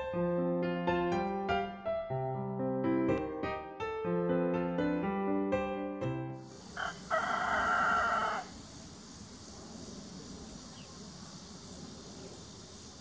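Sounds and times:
piano music: 0:00.0 - 0:06.8
insects hissing: 0:06.3 - 0:13.0
rooster crowing: 0:06.6 - 0:08.6.

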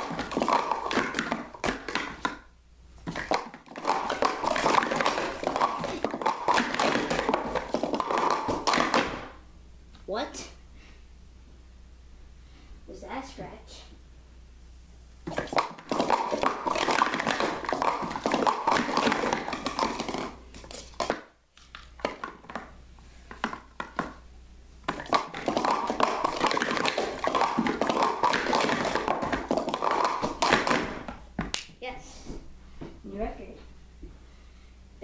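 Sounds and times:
plastic cups clattering: 0:00.0 - 0:09.3, 0:15.3 - 0:24.2, 0:24.9 - 0:31.2.

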